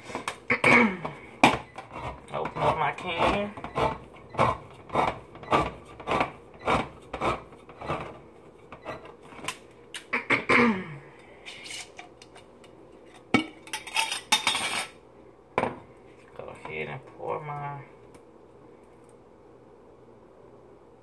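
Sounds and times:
metal scraping and clinking: 13.0 - 15.0.

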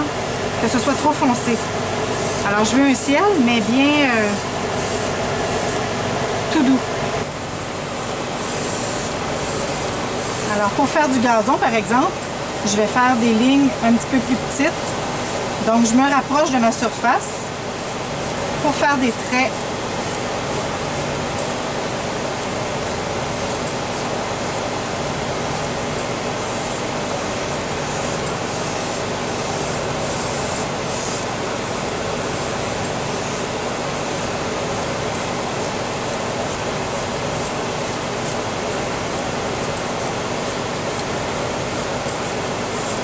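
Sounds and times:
small air compressor running: 0.0 - 43.0
airbrush spraying hiss: 1.2 - 5.9, 8.4 - 10.7, 26.3 - 34.3.

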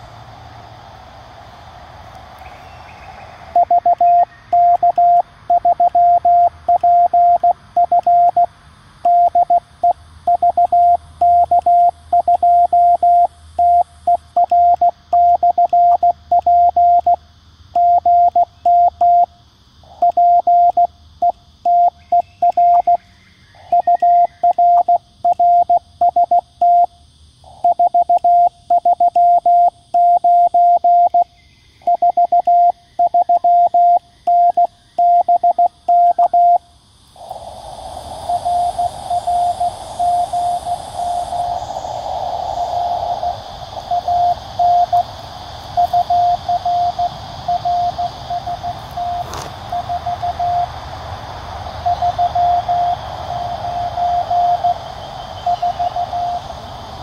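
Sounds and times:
morse code tone: 43.2 - 45.0, 45.7 - 50.7, 51.8 - 54.8, 55.4 - 56.4.

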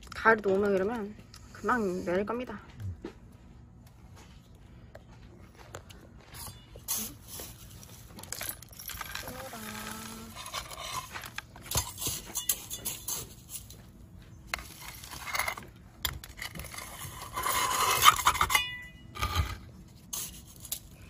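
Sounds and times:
soil scraping and rustling: 6.3 - 21.0.

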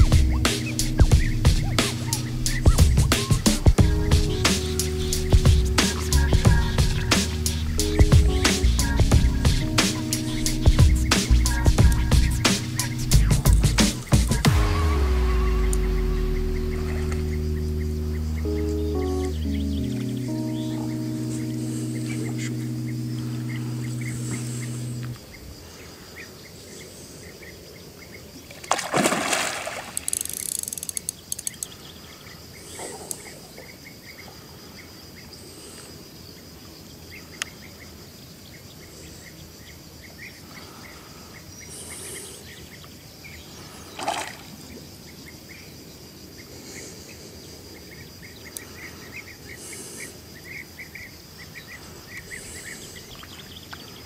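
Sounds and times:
small birds chirping: 0.0 - 14.5, 15.2 - 28.5, 29.5 - 54.0
background music: 0.0 - 25.2.

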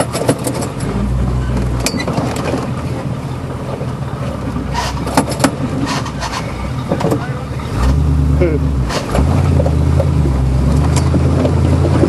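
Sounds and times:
vehicle body knocks and rattles: 0.0 - 7.4
vehicle engine pulling under load: 0.0 - 12.0.

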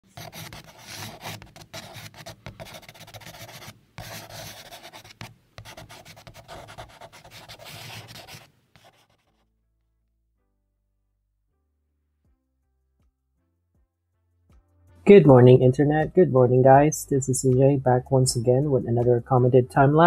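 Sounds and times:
pen scribbling on paper: 0.1 - 9.4.

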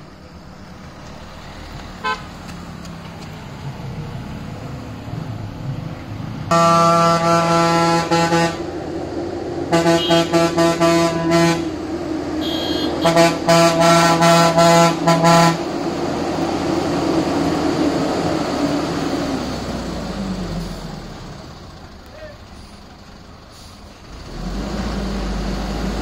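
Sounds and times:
heavy vehicle engine climbing: 0.0 - 26.0
truck horn honking: 1.9 - 2.4, 6.5 - 8.7, 9.7 - 15.8
higher vehicle horn beep: 2.0 - 2.4, 6.5 - 8.6, 9.7 - 11.8, 12.4 - 15.6.

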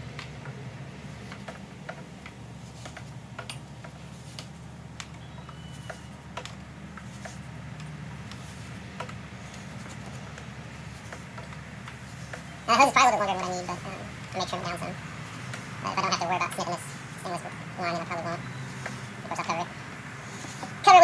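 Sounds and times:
steady low hum: 0.0 - 21.0
metal sleeving clicking and rattling: 0.1 - 16.7.

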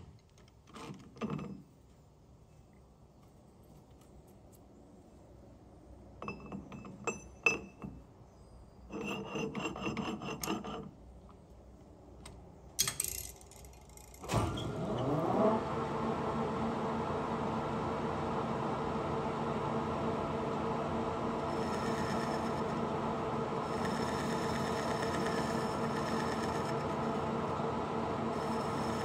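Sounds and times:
lathe chuck spinning hum: 8.9 - 11.0, 17.3 - 29.0
metal clinks and rattles: 12.8 - 14.3.

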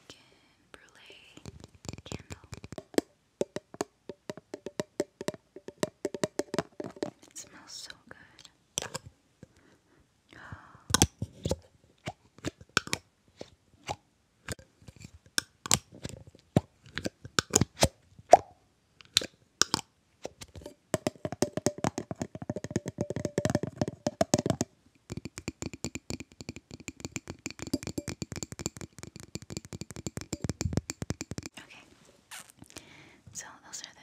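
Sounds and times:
fingernails tapping on glass jar: 1.4 - 7.3, 20.4 - 31.6.

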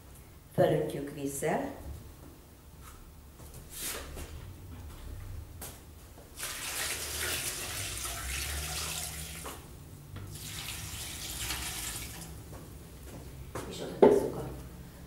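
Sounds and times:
water pouring into a pot: 6.4 - 9.6, 10.3 - 12.3.

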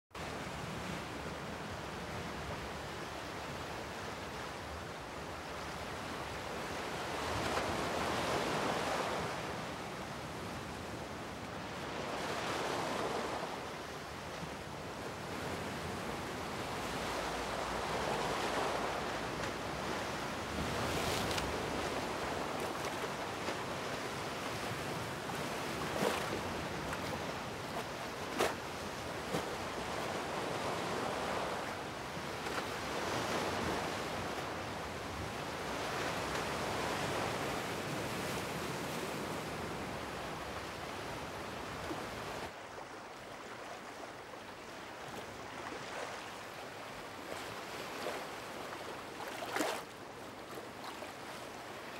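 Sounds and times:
wind: 0.1 - 51.9
sea waves washing against rocks: 15.1 - 39.4.

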